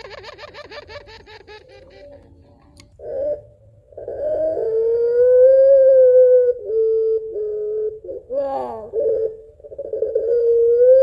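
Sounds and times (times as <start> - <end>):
dove cooing: 0.0 - 11.0.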